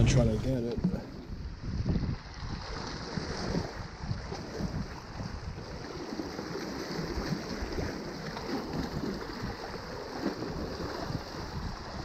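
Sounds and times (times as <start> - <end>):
small waves splashing on rocks: 2.4 - 12.0.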